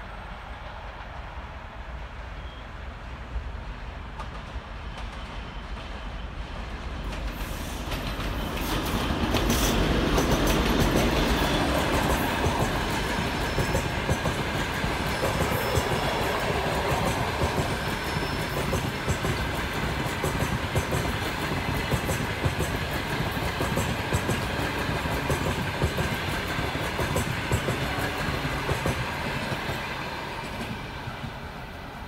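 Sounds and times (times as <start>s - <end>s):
diesel locomotive passing: 0.0s - 32.0s
train wheels clacking over rail joints: 7.0s - 30.8s.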